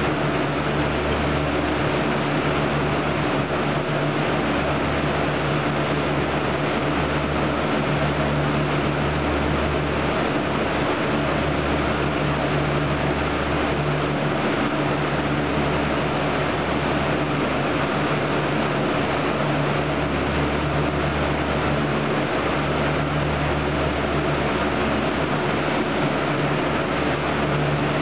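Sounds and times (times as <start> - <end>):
fan-like machinery noise: 0.0 - 28.0.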